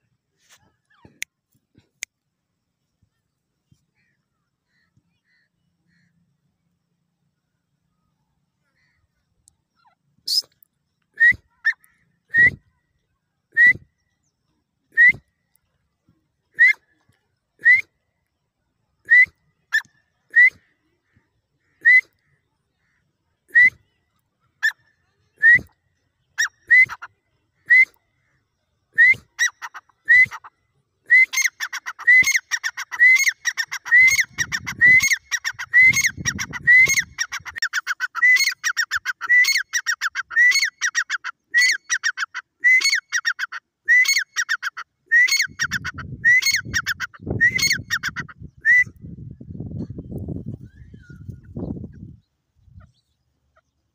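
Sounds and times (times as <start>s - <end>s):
francolin whistled calls: 9.8s - 12.8s, 19.0s - 20.8s, 21.6s - 22.4s, 23.5s - 49.2s, 50.4s - 52.0s.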